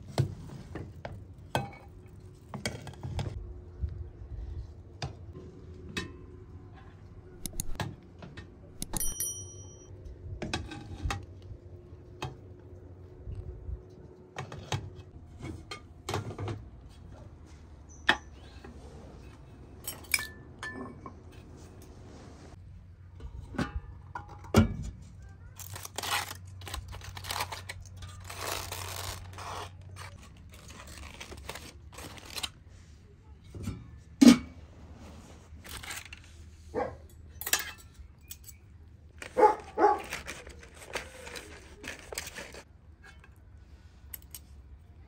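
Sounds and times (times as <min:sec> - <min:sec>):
handling knocks and clicks: 0:07.4 - 0:09.9
rustling or scraping: 0:21.2 - 0:22.6, 0:25.6 - 0:33.7, 0:34.5 - 0:37.1, 0:39.1 - 0:44.5.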